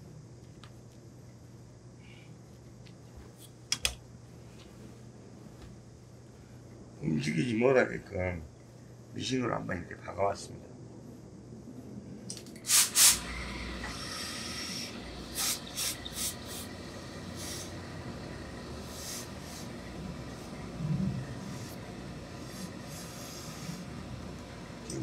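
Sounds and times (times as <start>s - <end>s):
steam iron hissing: 12.6s - 24.9s.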